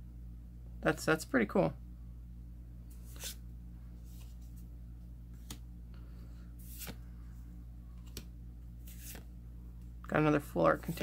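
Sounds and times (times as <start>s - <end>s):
steady low hum: 0.0s - 11.0s
cards swishing: 2.9s - 3.4s, 6.6s - 7.0s, 8.0s - 9.3s.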